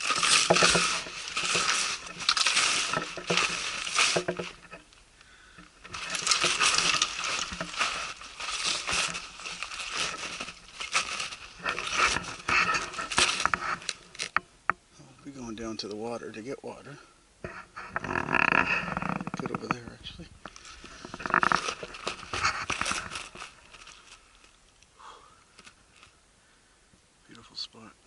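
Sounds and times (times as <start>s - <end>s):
footsteps crunching through snow: 0.0s - 4.9s, 5.6s - 14.2s, 20.5s - 24.5s.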